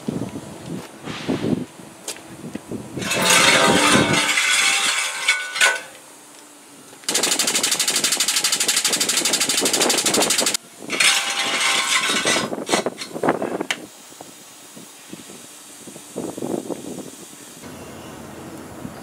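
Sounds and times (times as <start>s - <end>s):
compressed air hiss: 1.0s - 1.8s, 13.3s - 17.6s
hydraulic jacks rattling: 3.0s - 6.0s, 7.0s - 13.8s.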